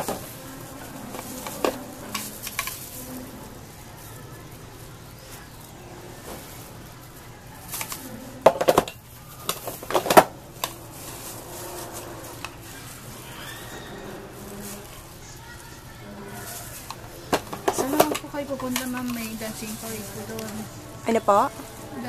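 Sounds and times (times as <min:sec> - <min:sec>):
plastic tub and spoon clattering: 0:00.0 - 0:03.5, 0:07.6 - 0:13.0, 0:16.3 - 0:20.7
low background hum: 0:00.0 - 0:22.0.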